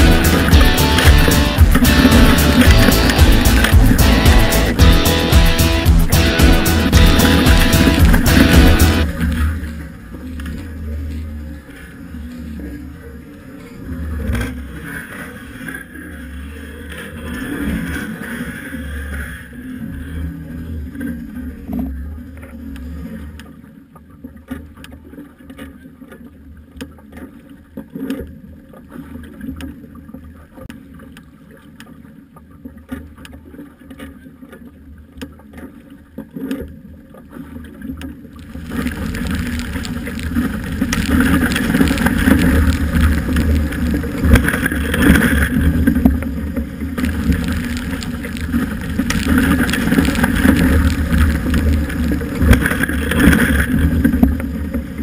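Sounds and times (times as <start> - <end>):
scattered clicks: 0.0 - 9.1, 38.5 - 45.6
faint low rumble: 0.0 - 24.4, 37.8 - 55.0
water rushing and splashing: 0.0 - 55.0.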